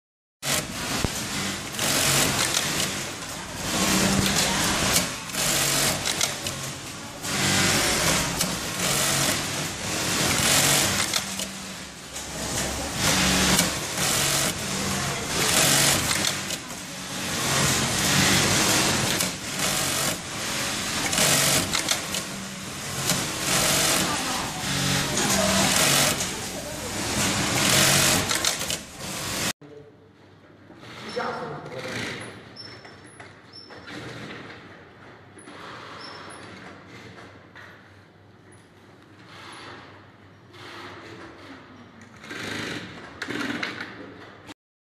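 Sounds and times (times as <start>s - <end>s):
sewing machine stitching: 0.4s - 29.6s, 40.6s - 44.0s.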